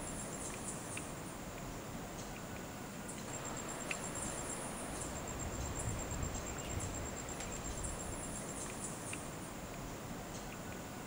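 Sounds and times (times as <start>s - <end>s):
soft background hiss: 0.0s - 11.0s
high-pitched insect trill: 3.1s - 11.0s.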